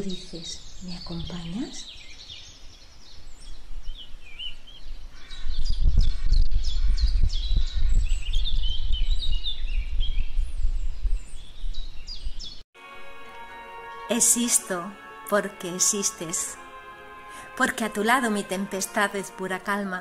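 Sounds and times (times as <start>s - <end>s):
birds chirping: 0.0s - 12.6s.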